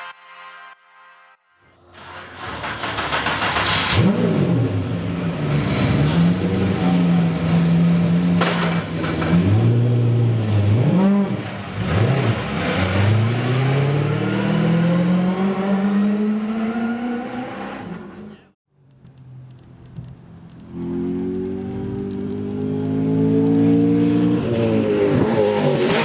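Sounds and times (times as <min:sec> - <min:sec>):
race car engine revving: 0:02.2 - 0:08.4, 0:10.7 - 0:18.2, 0:20.7 - 0:26.0.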